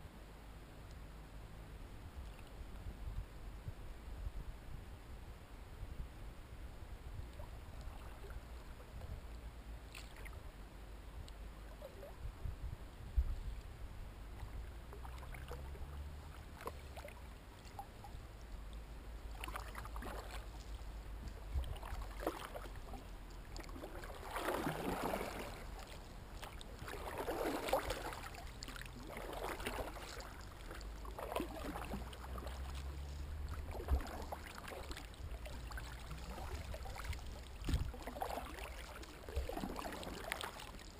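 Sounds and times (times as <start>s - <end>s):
low steady rumble: 0.0s - 40.9s
water swishing and splashing: 7.2s - 10.7s, 11.5s - 40.9s
kayak paddle strokes in water: 13.2s - 40.9s.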